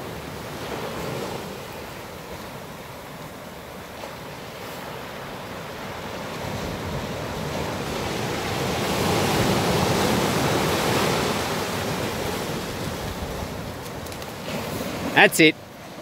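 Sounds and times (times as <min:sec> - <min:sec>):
ocean surf breaking: 0:00.0 - 0:16.0.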